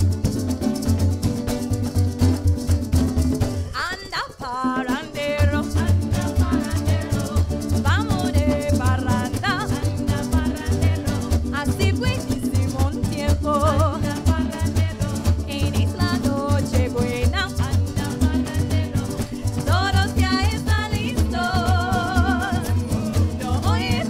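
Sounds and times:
acoustic strings strumming: 0.0s - 24.0s
group of people singing: 4.6s - 8.5s, 9.2s - 11.4s, 13.3s - 24.0s
bass line: 5.0s - 24.0s.

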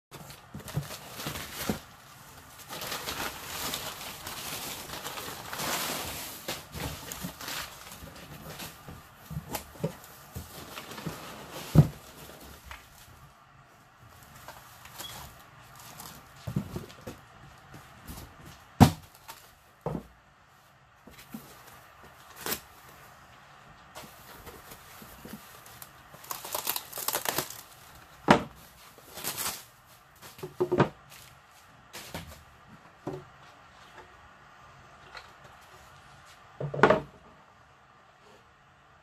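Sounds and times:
packing paper rustling: 0.1s - 17.2s, 18.0s - 19.7s, 21.1s - 23.3s, 24.0s - 32.4s.

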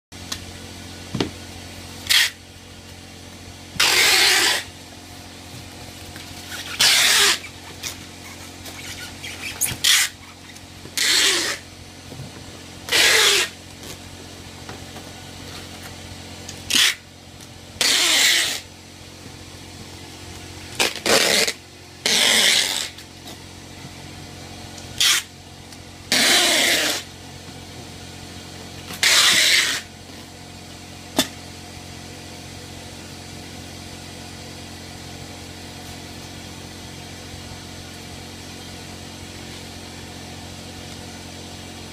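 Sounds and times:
steady low hum: 0.2s - 41.9s.

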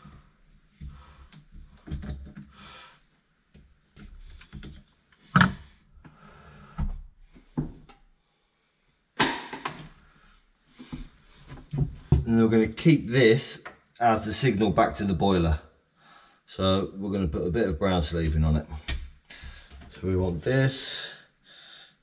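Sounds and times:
clicks and knocks: 5.3s - 5.6s.

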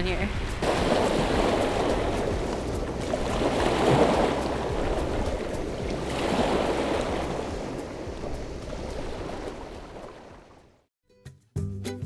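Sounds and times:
waves lapping on cobbles: 0.3s - 10.6s.

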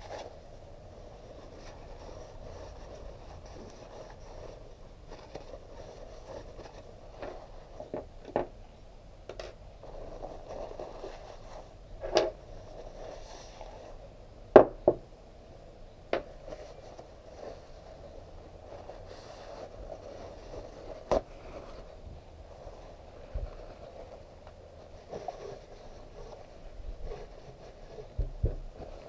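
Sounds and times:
paper towel rustling: 16.5s - 29.0s.

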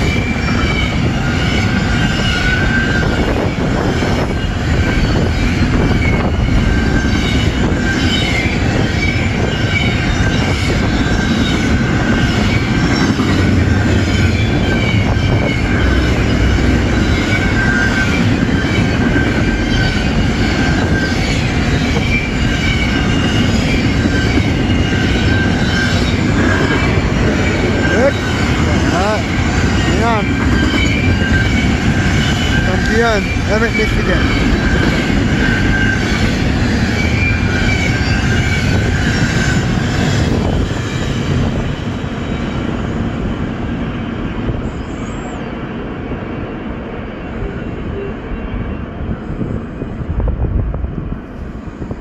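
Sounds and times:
high-pitched wheel squeal: 0.0s - 40.9s
wheels rumbling on rail: 0.0s - 52.0s.

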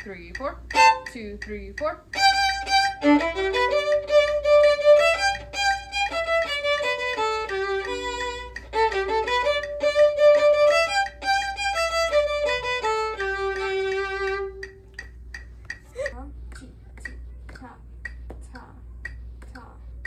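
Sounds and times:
fast bowed violin: 0.7s - 1.1s, 2.1s - 14.7s.

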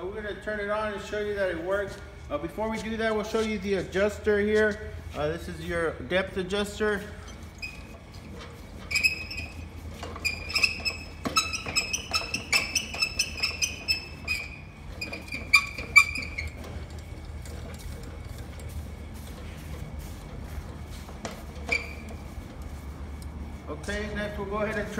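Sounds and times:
hand crank squeaking: 7.2s - 19.4s, 21.3s - 23.4s.

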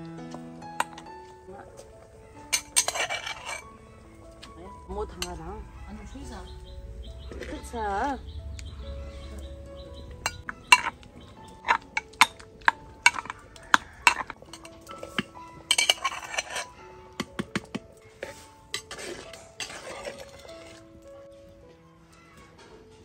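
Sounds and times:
soft background music: 0.0s - 23.0s
metal spoon clinking on pot: 2.5s - 3.7s, 10.0s - 20.8s
liquid pouring into pot: 18.7s - 21.2s.

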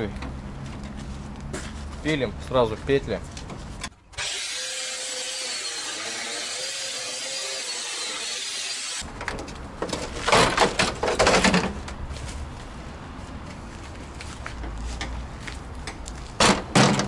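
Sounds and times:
angle grinder cutting metal: 4.2s - 9.0s
loud metal knocks and clatter: 16.4s - 17.0s.

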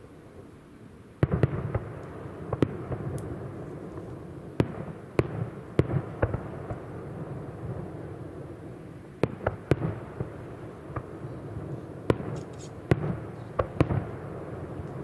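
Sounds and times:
firework shells bursting: 12.1s - 13.8s.

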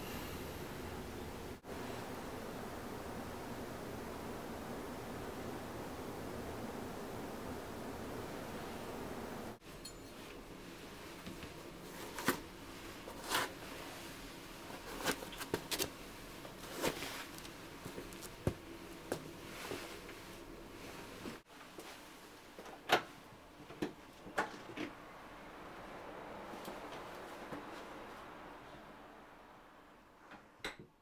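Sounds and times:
clothing rustling: 9.6s - 22.6s.

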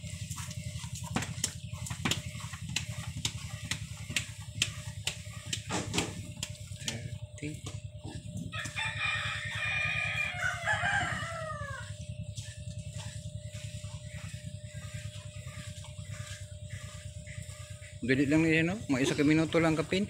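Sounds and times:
rooster crowing: 8.5s - 12.1s.

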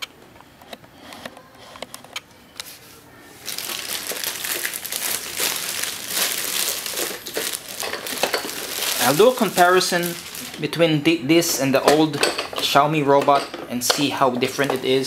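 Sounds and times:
plastic bag crinkling: 3.3s - 13.0s, 14.1s - 15.0s.

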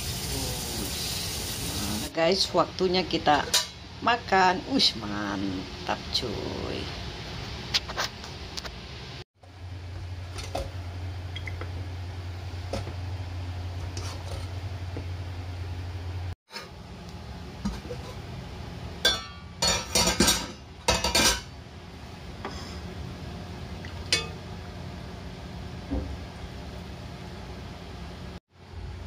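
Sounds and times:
low steady hum: 9.0s - 29.0s.

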